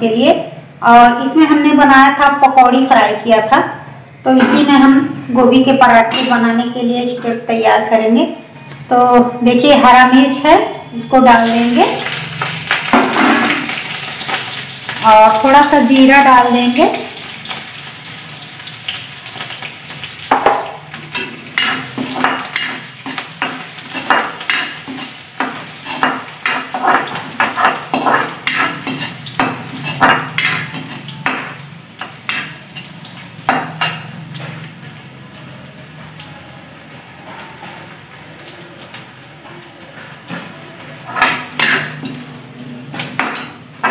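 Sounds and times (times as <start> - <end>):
spices sizzling in hot oil: 11.2 - 43.9
spatula scraping and clinking pan: 20.3 - 34.6, 41.1 - 42.2.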